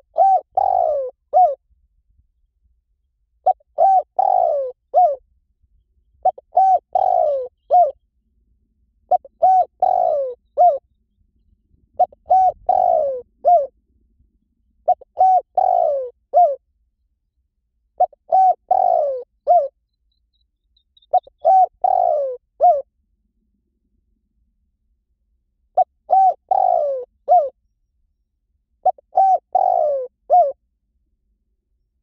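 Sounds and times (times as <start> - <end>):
dove cooing: 0.0 - 1.6, 3.4 - 5.2, 6.2 - 8.0, 9.1 - 10.8, 11.9 - 13.8, 14.8 - 16.6, 18.0 - 19.8, 21.0 - 22.9, 25.8 - 27.6, 28.8 - 30.6.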